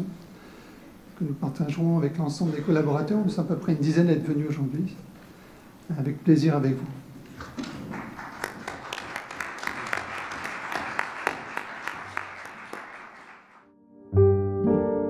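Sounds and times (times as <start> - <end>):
audience applause: 7.4 - 13.7
piano music: 13.6 - 15.0.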